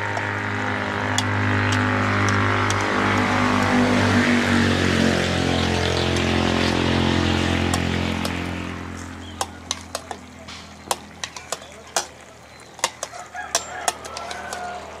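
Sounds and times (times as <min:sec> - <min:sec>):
motor engine running: 0:00.0 - 0:11.8.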